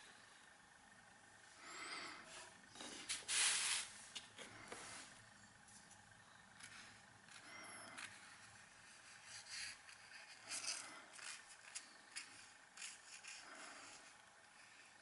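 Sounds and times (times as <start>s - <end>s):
rope scratching across paper: 8.0s - 15.0s.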